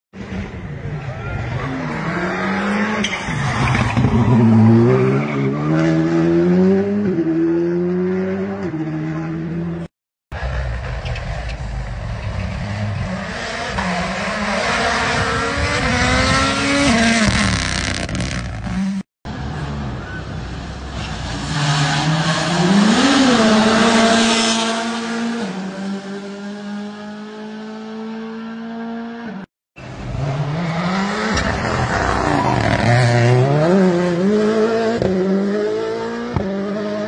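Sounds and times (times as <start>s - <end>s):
rally cars passing at speed: 0.2s - 37.0s
turbocharged engines revving hard: 12.3s - 20.1s, 20.9s - 29.3s, 29.9s - 37.0s.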